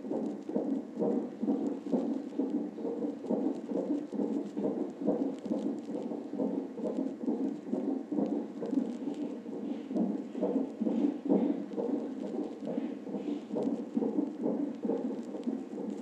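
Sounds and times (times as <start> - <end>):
fetal heartbeat pulsing: 0.0 - 16.0.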